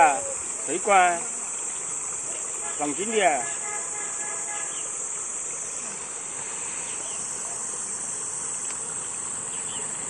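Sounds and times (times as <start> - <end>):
insect chorus buzzing: 0.0 - 10.0.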